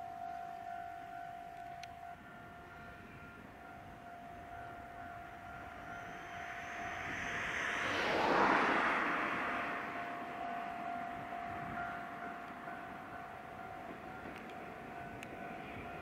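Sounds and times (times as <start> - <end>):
level crossing warning bell: 0.0 - 8.2, 8.8 - 16.0
road vehicle passing: 5.2 - 13.2.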